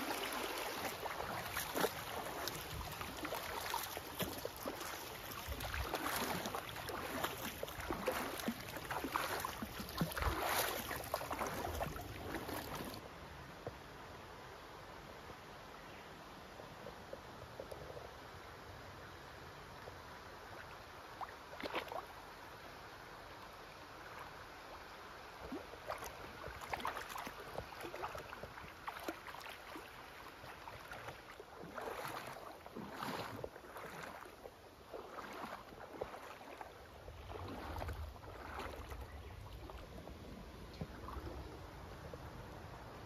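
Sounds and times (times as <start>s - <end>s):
wading steps splashing: 0.0s - 13.0s, 25.4s - 41.4s
river water flowing: 0.0s - 43.0s.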